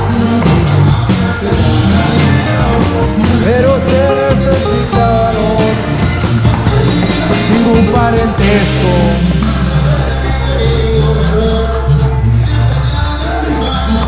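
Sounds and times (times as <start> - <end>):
steady drum beat: 0.0 - 10.7
guitar: 0.0 - 14.0
person singing: 0.0 - 14.0.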